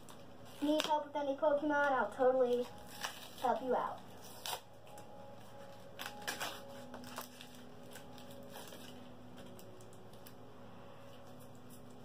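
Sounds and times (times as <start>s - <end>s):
foil pack tearing and crinkling: 0.0s - 1.0s, 2.4s - 10.4s.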